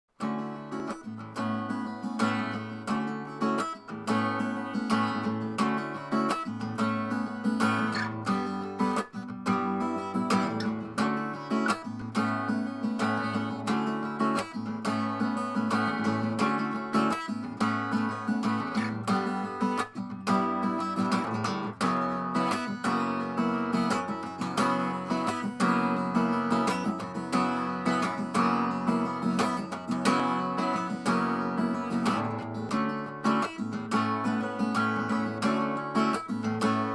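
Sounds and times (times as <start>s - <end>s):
acoustic guitar music: 0.1s - 36.9s.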